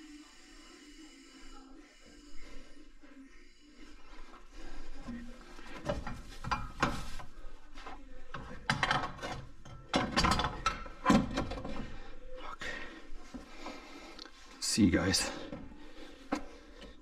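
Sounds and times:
metallic clanks and rattles: 0:08.3 - 0:11.9.

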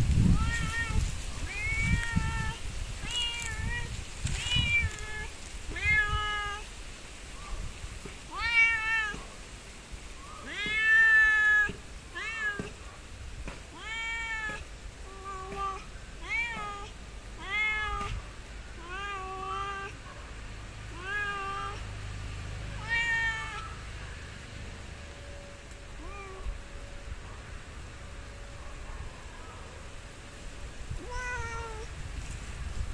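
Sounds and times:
cat meowing: 0:00.3 - 0:06.7, 0:08.3 - 0:09.3, 0:10.4 - 0:12.8, 0:13.7 - 0:18.2, 0:18.8 - 0:20.0, 0:20.9 - 0:21.8, 0:22.7 - 0:23.8, 0:26.0 - 0:26.6, 0:31.0 - 0:31.9.

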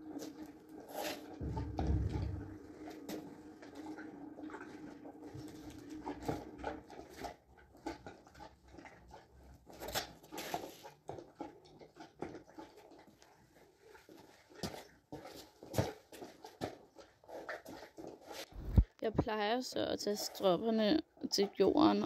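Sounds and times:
saddle leather rustling and clicking: 0:14.0 - 0:18.8.

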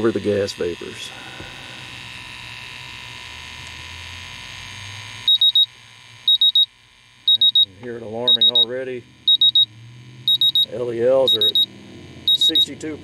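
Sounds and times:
gas detector alarm beeps: 0:05.3 - 0:12.8.

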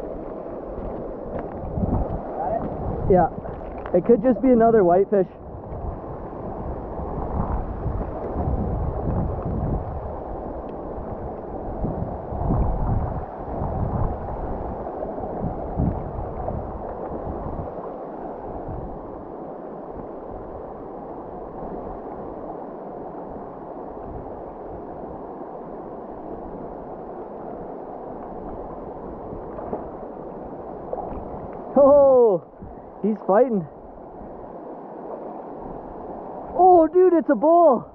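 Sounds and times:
river rushing over stones: 0:00.0 - 0:05.3
wind on microphone: 0:00.0 - 0:37.9.

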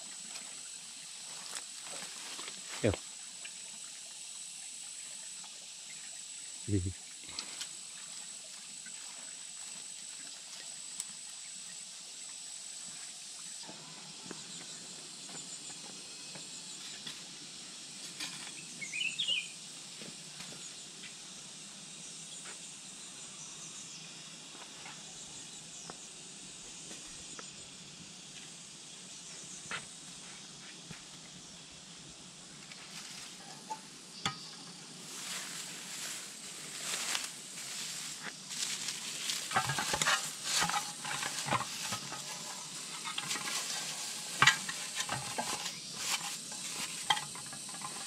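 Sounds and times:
high insect whine: 0:00.0 - 0:48.0
faint clicks and rustles: 0:35.1 - 0:48.0.

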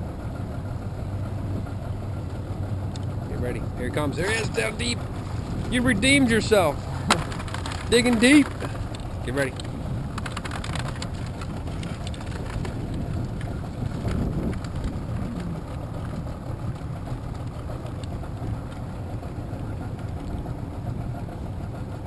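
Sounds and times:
boat motor idling: 0:00.0 - 0:22.0
light ticks: 0:02.9 - 0:03.1, 0:17.3 - 0:18.9.

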